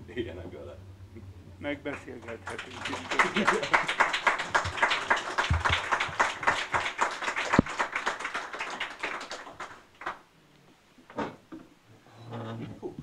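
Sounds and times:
small audience applauding: 0:01.7 - 0:10.3.

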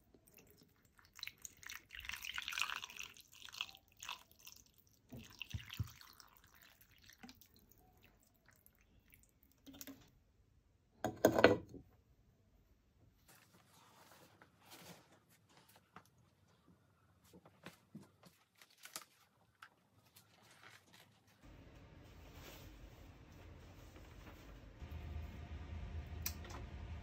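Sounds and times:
water pouring and splashing: 0:00.1 - 0:10.1.

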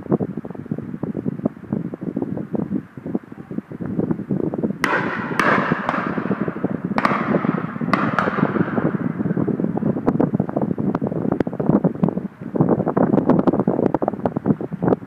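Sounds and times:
wind buffeting microphone: 0:00.0 - 0:15.0
shotguns firing with echo: 0:04.8 - 0:09.3.

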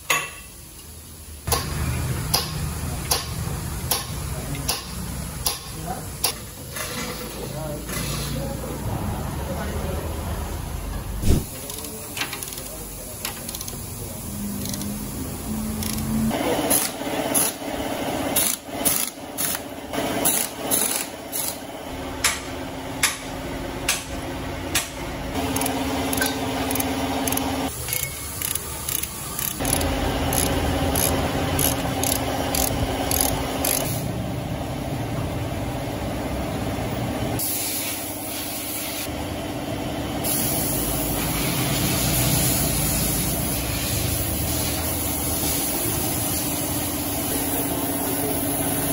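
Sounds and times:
steady mechanical hum: 0:00.0 - 0:48.9
metal hand tools clicking: 0:25.5 - 0:33.9.

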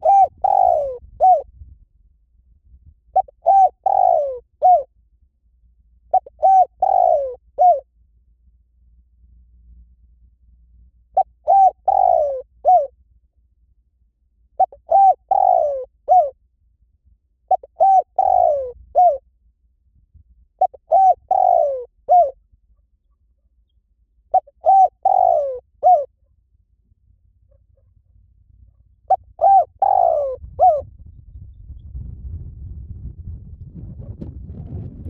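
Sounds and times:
dove cooing: 0:00.0 - 0:01.5, 0:03.1 - 0:04.9, 0:06.1 - 0:07.8, 0:11.2 - 0:12.9, 0:14.6 - 0:16.4, 0:17.5 - 0:19.2, 0:20.6 - 0:22.4, 0:24.3 - 0:26.1, 0:29.1 - 0:30.8.

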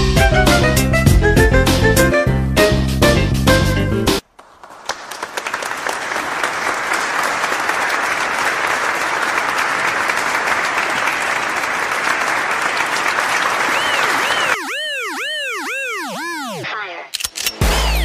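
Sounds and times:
crowd clapping: 0:04.2 - 0:15.2.

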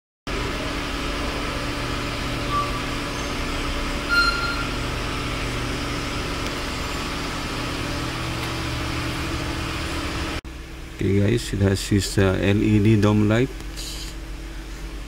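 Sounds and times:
ventilation fan humming: 0:00.3 - 0:15.0
short high beeps: 0:04.1 - 0:04.8.

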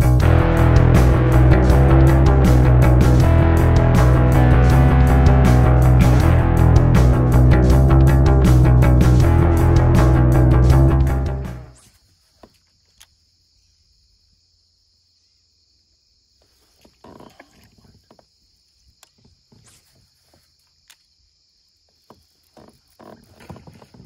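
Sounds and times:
music track: 0:00.0 - 0:11.8.

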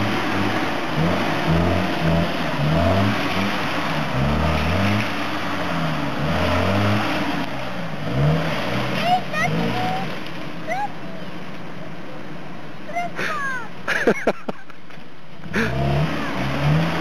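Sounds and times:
engine revving: 0:00.0 - 0:10.4, 0:15.4 - 0:17.0.

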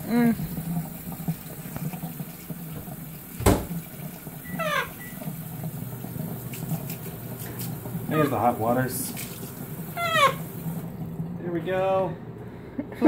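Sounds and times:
tap water running into sink: 0:00.0 - 0:11.3
macaw squawk: 0:10.0 - 0:10.5.

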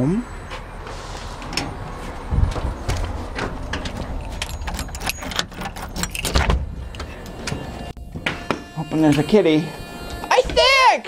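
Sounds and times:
keys jangling: 0:03.7 - 0:06.5
door lock clicking and rattling: 0:03.7 - 0:06.6.

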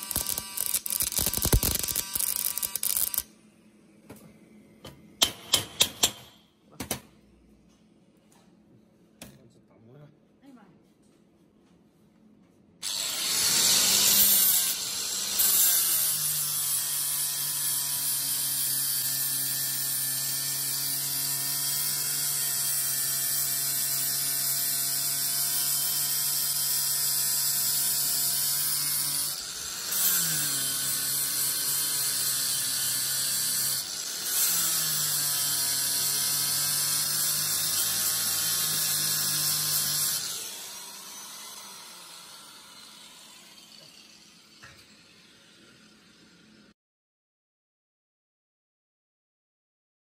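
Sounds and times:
angle grinder grinding steel: 0:00.0 - 0:03.3, 0:12.8 - 0:46.6.

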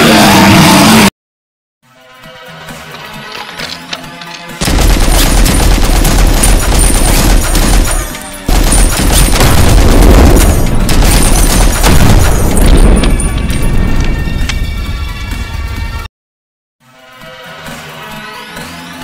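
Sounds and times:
rapid machine-gun fire: 0:04.6 - 0:13.2.

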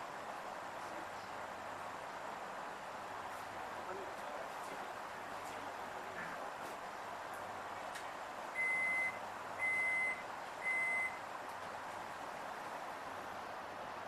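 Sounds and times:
train carriage hum: 0:00.0 - 0:14.0
train door warning beeps: 0:08.6 - 0:11.2.

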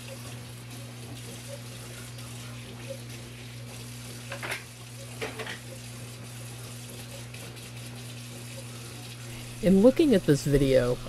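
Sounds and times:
faucet running into steel sink: 0:00.0 - 0:11.0
scrubbing and handling dishes: 0:04.3 - 0:05.8.

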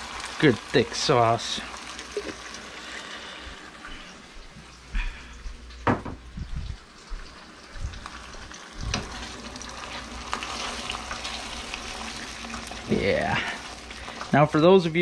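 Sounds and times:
sauce sizzling in a frying pan: 0:00.0 - 0:05.9, 0:06.8 - 0:15.0
stirring in a pan: 0:08.8 - 0:14.5.

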